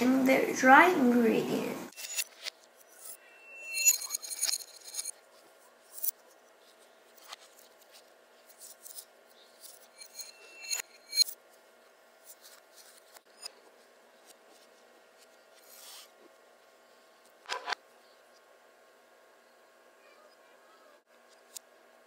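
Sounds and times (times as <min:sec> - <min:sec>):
faint steady hum: 0:00.0 - 0:22.0
spoon scraping ceramic bowl: 0:03.0 - 0:05.1, 0:09.6 - 0:11.3.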